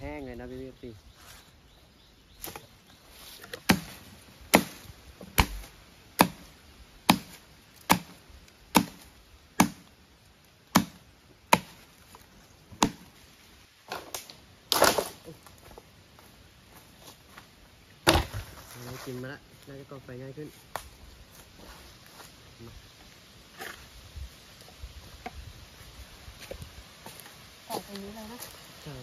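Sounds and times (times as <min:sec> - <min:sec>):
machete chopping branch: 0:02.4 - 0:02.7, 0:03.4 - 0:06.5, 0:07.1 - 0:09.9, 0:10.7 - 0:11.9, 0:12.7 - 0:13.1, 0:13.9 - 0:15.2, 0:18.0 - 0:18.6
wood rustling and cracking: 0:13.8 - 0:15.9.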